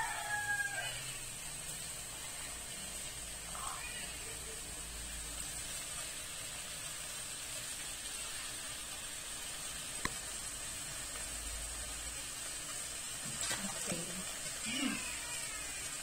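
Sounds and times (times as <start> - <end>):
fish sizzling in pot: 0.0 - 16.0.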